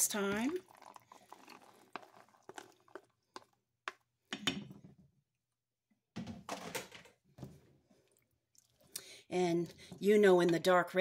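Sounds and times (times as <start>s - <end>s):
stirring in pot: 0.0s - 4.2s
beans tapping and plopping into pot: 0.0s - 4.6s.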